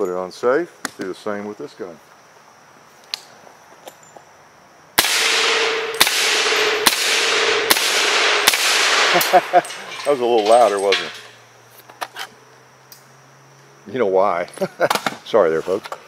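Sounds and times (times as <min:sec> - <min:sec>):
suppressed rifle shots echoing: 0:05.0 - 0:09.8.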